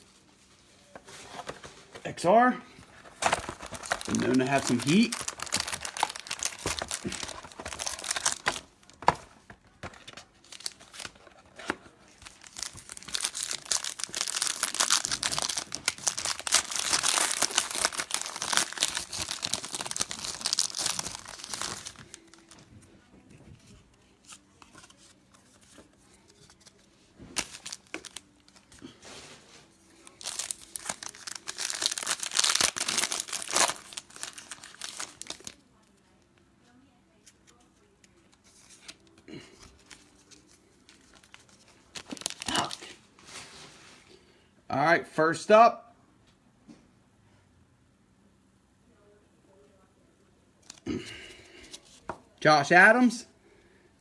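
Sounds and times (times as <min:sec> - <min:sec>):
foil wrappers tearing and crinkling: 0:03.2 - 0:09.0, 0:12.1 - 0:22.6, 0:27.4 - 0:28.9, 0:30.0 - 0:35.6, 0:41.0 - 0:43.0.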